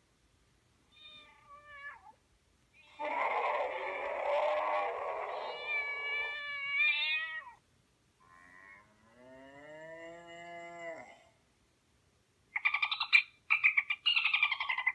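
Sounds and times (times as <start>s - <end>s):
cat meows through phone speaker: 4.6s - 7.6s.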